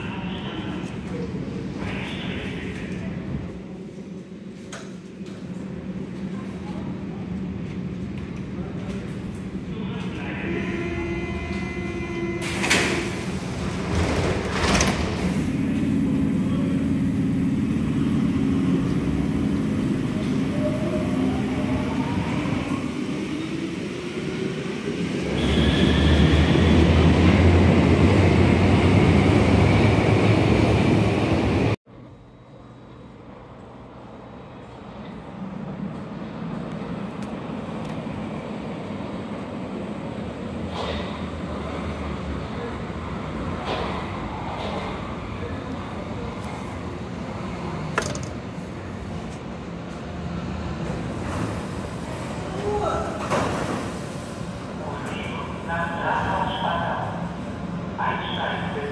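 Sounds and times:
train rumbling and braking: 0.0s - 58.9s
wheels rumbling on rails: 12.4s - 21.9s.

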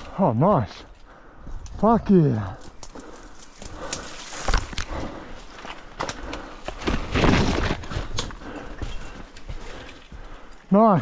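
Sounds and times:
footsteps through bush: 0.0s - 11.0s
rustling vegetation: 0.0s - 11.0s.

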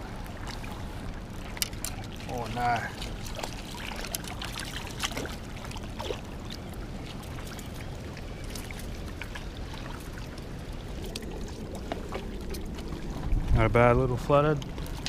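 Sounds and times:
river water lapping on rocks: 0.0s - 15.0s
wind on microphone: 9.4s - 15.0s.

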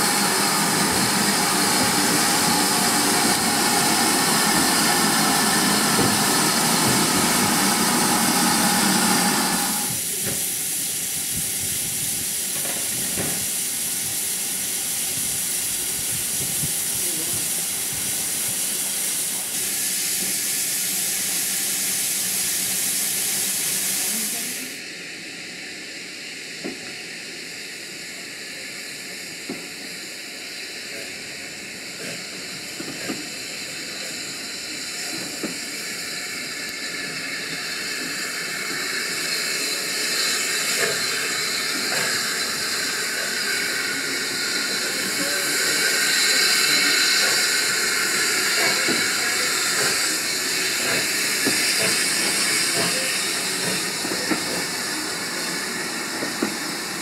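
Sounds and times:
steam locomotive hissing: 0.0s - 57.0s.

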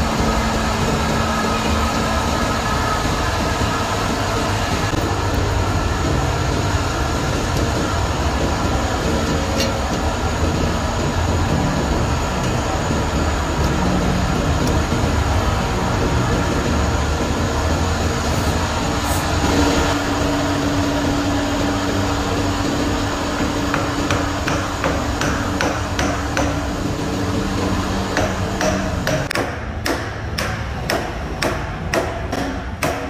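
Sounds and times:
workshop drone: 0.0s - 33.0s.

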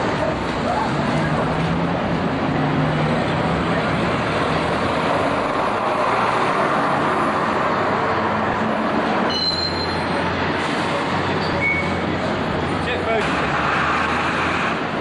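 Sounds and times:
bus diesel engines rumbling: 0.0s - 15.0s
brief high squeal: 9.3s - 10.1s, 11.4s - 12.0s.

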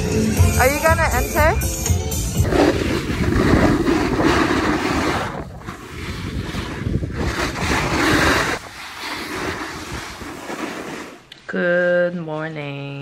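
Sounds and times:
wind rushing over microphone: 2.2s - 11.1s
edges scraping over snow: 2.4s - 11.3s.

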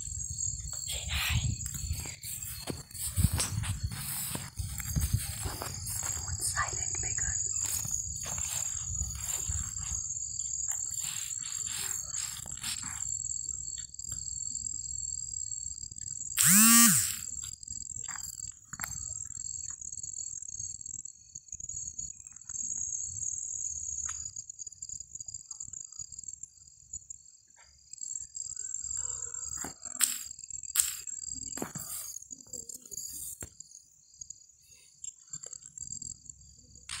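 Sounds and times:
high insect trill: 0.0s - 37.0s
low pulsing insect trill: 0.0s - 37.0s.

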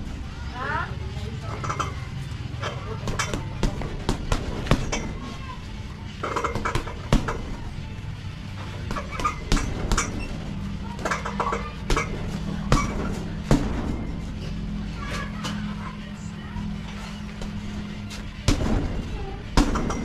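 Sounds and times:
gloves punching heavy bag: 11.9s - 14.0s.

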